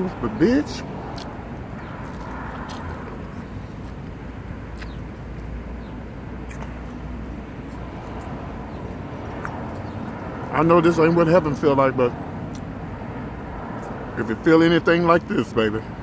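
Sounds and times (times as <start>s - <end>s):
low rumble of vehicle traffic: 0.0s - 16.0s
pizza being chewed: 1.1s - 5.5s.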